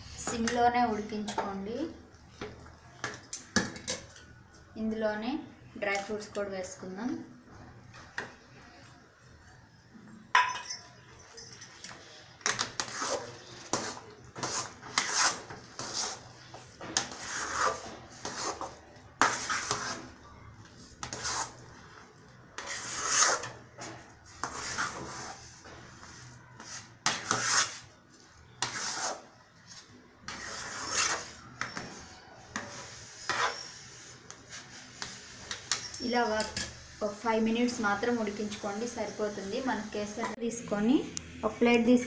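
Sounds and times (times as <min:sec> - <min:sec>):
metal spatula scraping metal pan: 0:12.4 - 0:20.2, 0:21.0 - 0:22.0, 0:22.6 - 0:27.9, 0:28.6 - 0:29.3, 0:30.3 - 0:40.4.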